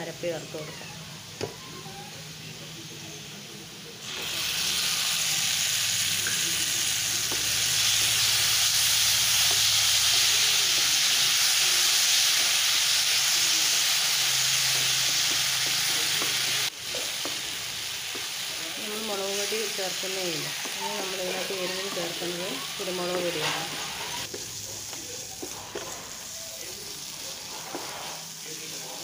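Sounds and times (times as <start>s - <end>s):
paste sizzling in hot oil: 1.2s - 29.0s
spatula scraping pan: 20.5s - 24.4s, 27.4s - 28.3s.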